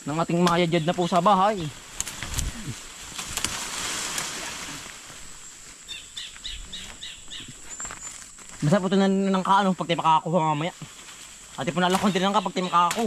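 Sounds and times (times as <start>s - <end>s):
leaves and branches rustling: 0.0s - 13.0s
bird chirping: 0.2s - 2.5s, 5.3s - 8.4s, 11.6s - 13.0s.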